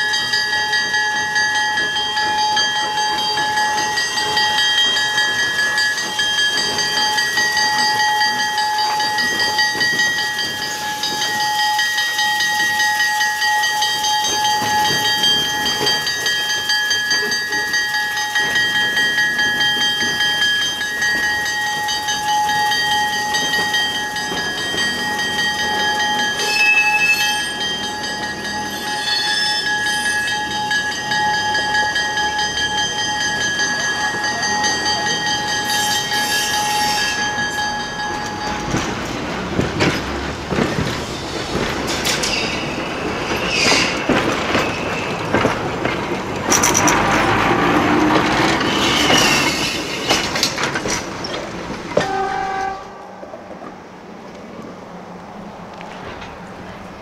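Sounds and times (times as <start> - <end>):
electric locomotive whine: 0.0 - 57.0
wheels rumbling on rails: 0.0 - 57.0
trolley knocking and clattering: 38.6 - 52.7.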